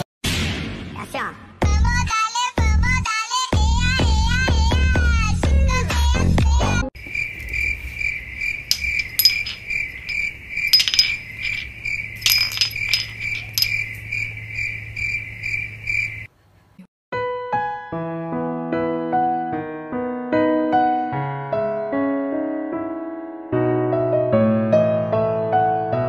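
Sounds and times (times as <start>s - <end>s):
insect-like chirping: 7.0s - 16.3s
sharp clinks: 8.4s - 14.4s.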